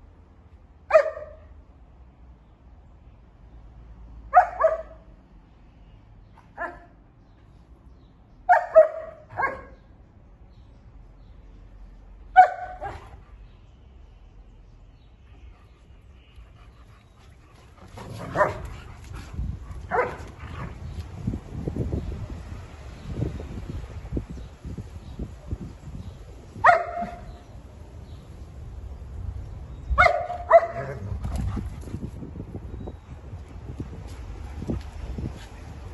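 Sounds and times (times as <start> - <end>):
dogs barking: 4.3 - 5.0, 8.5 - 9.8, 12.4 - 13.2, 18.0 - 18.9, 19.8 - 20.7, 26.6 - 27.4, 30.0 - 31.2.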